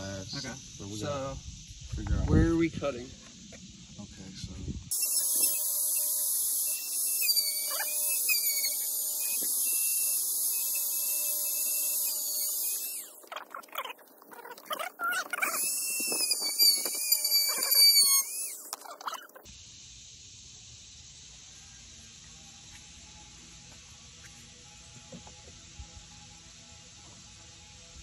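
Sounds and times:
rotary cutting tool whining: 4.9 - 19.5.

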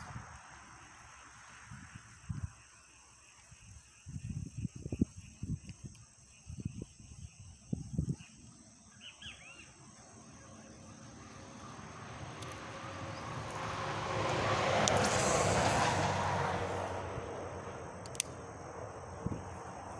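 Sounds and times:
high insect drone: 0.0 - 19.9
bird chirping: 2.7 - 11.8
rushing noise: 10.9 - 19.9.

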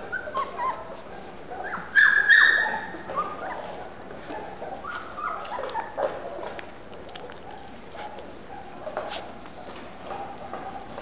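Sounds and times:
puppy whimpering and yelping: 0.0 - 1.0, 1.6 - 3.8, 4.8 - 6.5.

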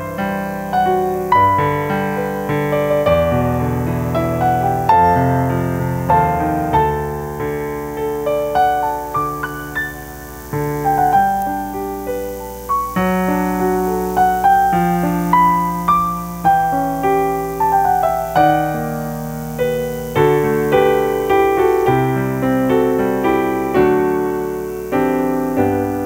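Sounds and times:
slow gentle piano piece: 0.0 - 26.0.

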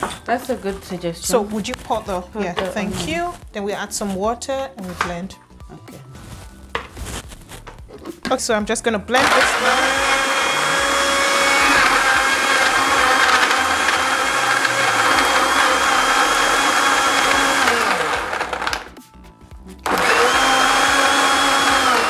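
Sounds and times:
blender motor running: 9.2 - 18.9, 19.8 - 22.0.

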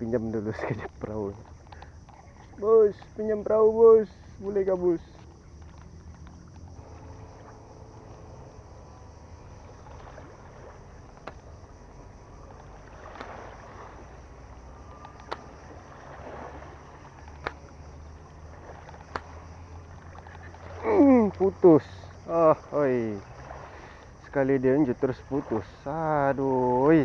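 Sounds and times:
fishing line clicks: 0.8 - 13.7, 14.3 - 16.0, 16.8 - 21.6
low outdoor rumble: 2.4 - 23.6.

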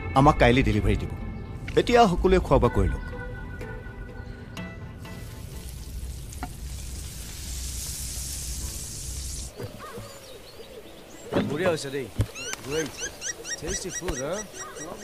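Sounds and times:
fish sizzling in hot oil: 5.1 - 9.5.

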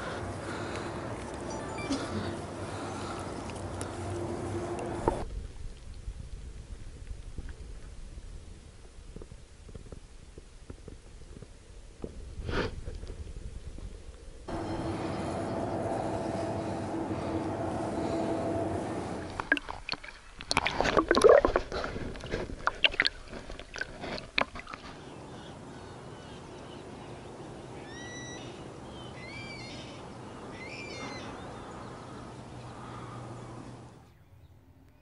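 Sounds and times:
lakeside ambience: 0.0 - 35.0
water splashing and sloshing: 14.9 - 25.5
bird rising calls: 24.8 - 34.5.

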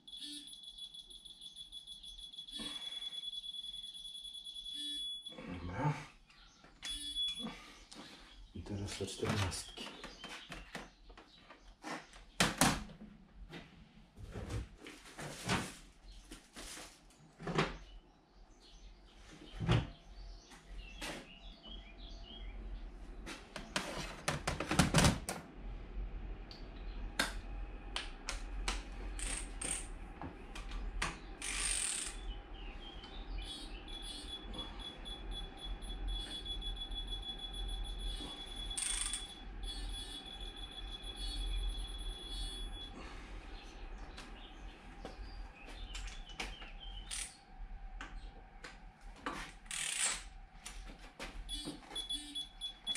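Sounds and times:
steady low hum: 25.4 - 49.7.

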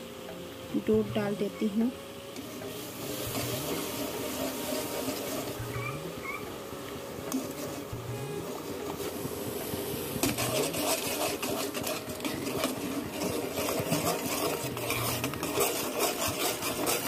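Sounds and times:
metal spoon scraping steel pot: 10.2 - 17.0.

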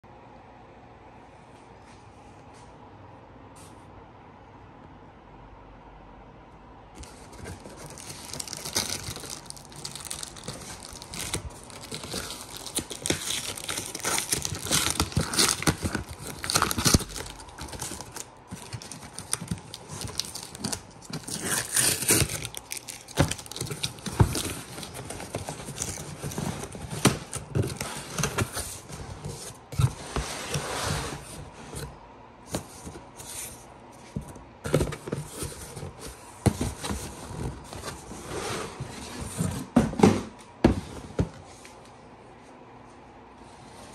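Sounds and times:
cardboard tearing and rustling: 7.0 - 33.6, 34.2 - 39.8.

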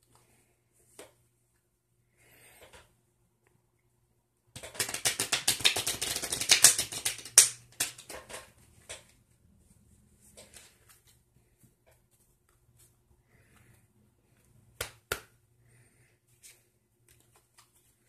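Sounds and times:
playing cards shuffling: 4.6 - 9.1, 16.4 - 18.0.

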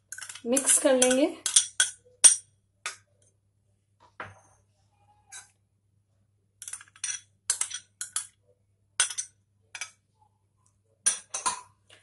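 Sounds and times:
spoon scraping and clinking bowls: 0.0 - 2.5, 6.6 - 8.4.

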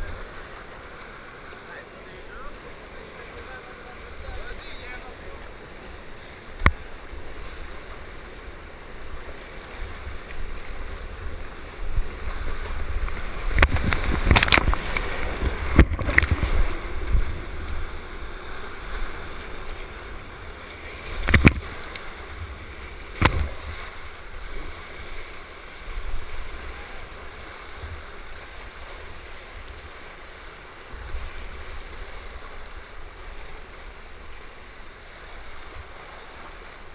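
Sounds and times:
rapids rushing and splashing: 0.0 - 36.9
sharp knocks against camera: 21.2 - 21.6.

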